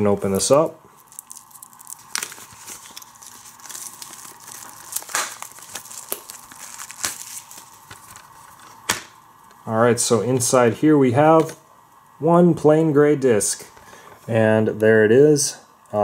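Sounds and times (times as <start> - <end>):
plastic shrink wrap tearing: 0.1 - 9.0.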